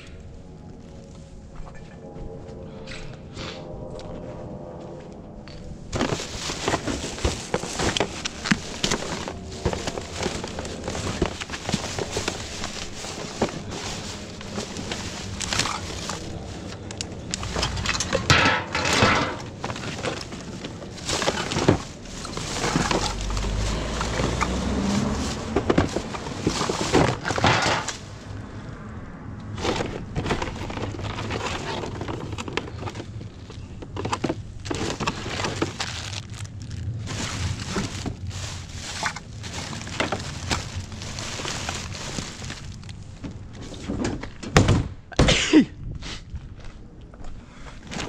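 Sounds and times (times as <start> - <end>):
rummaging through rubbish: 5.9 - 28.6, 29.5 - 44.8.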